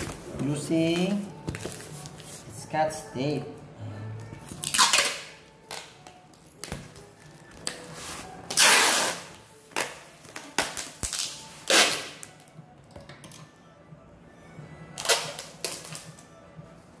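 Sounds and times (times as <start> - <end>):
packing tape ripping off roll: 4.6 - 6.0, 7.6 - 12.4, 15.0 - 16.1.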